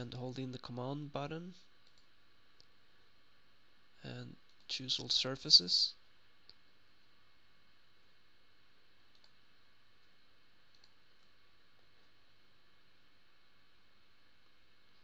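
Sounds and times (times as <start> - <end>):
computer mouse clicks: 1.8 - 2.7, 9.1 - 9.4, 10.0 - 11.3.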